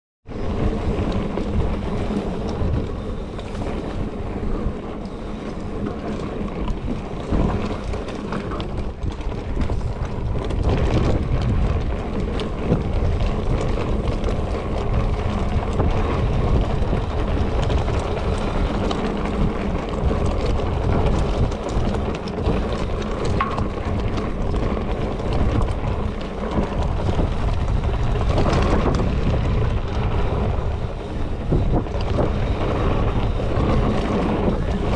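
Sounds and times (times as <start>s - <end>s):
tyres rolling on gravel: 0.3s - 34.9s
wind on microphone: 0.3s - 34.9s
bike knocks and rattles: 0.4s - 34.9s.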